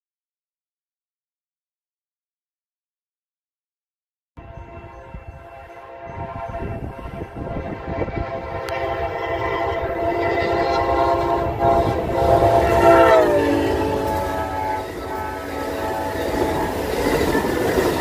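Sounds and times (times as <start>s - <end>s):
locomotive air horn: 4.4s - 17.8s
train wheels rumbling on rails: 4.4s - 18.0s.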